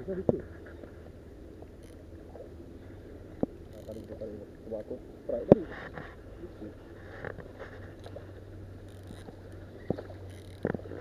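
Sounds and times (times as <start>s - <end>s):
low steady background noise: 0.0s - 11.0s
fishing reel winding: 1.8s - 2.0s, 3.7s - 4.2s, 8.8s - 9.4s, 10.2s - 10.7s.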